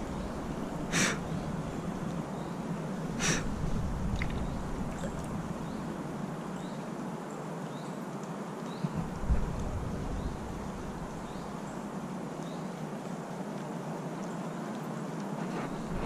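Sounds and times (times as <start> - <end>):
background hiss: 0.0 - 16.0
sharp breath through nose: 0.9 - 1.3, 3.2 - 3.5.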